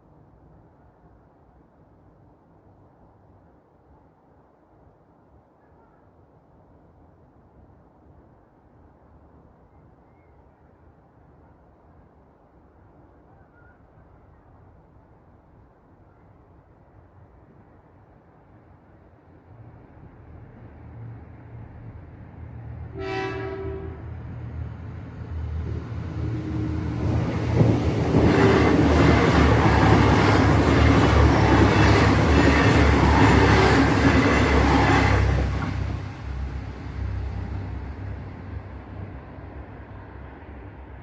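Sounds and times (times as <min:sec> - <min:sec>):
train passing at speed: 0:10.1 - 0:41.0
train horn blast: 0:22.9 - 0:24.2.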